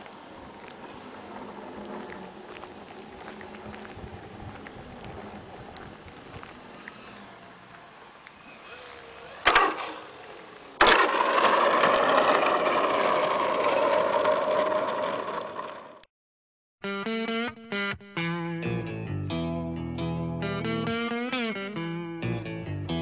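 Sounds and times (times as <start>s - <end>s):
model plane propeller drone: 0.0s - 16.0s.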